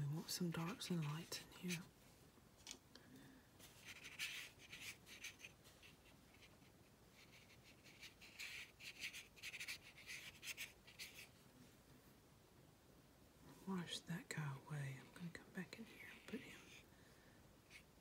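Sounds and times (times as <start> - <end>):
brush strokes on paper: 3.6 - 11.8.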